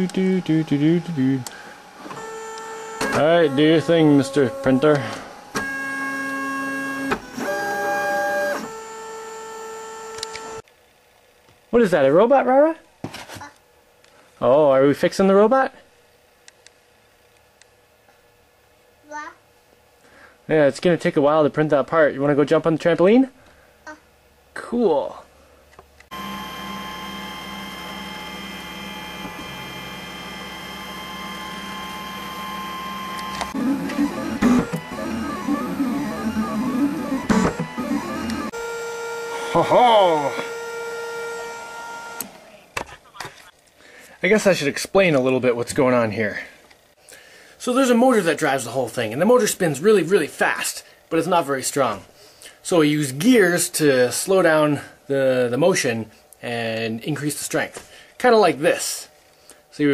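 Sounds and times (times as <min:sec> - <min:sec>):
stepper motors whining: 0:00.0 - 0:10.6, 0:26.1 - 0:42.8.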